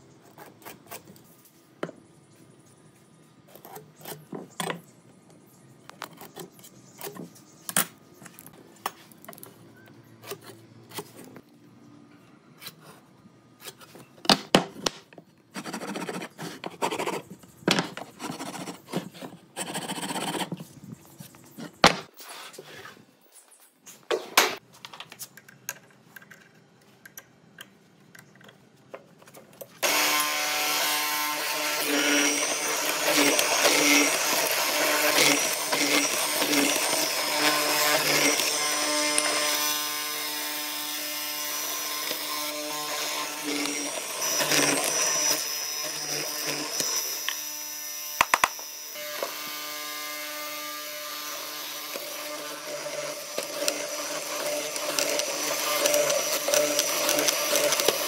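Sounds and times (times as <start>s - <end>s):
mortising machine cutting wood: 29.8s - 58.0s.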